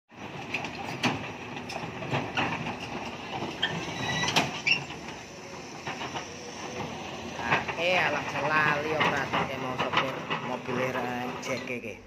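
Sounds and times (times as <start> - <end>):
excavator tracks clanking: 0.1 - 12.0
high metallic squeal: 3.5 - 5.0.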